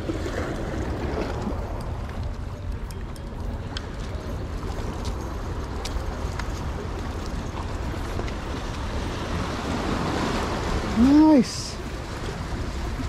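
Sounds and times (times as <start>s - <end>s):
wind rumbling on microphone: 0.0s - 13.0s
sea water washing against rocks: 3.6s - 13.0s.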